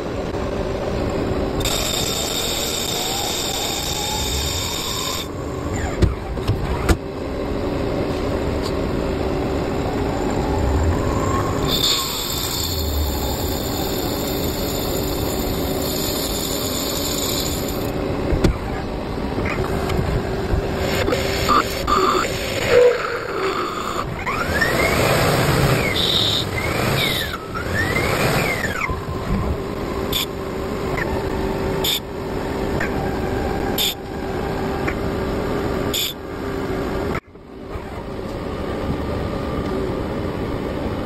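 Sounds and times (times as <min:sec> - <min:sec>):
machine whine rising and falling: 0:00.0 - 0:18.1, 0:19.2 - 0:35.8
lathe machining noise: 0:01.5 - 0:05.9, 0:09.9 - 0:18.1, 0:19.3 - 0:28.9.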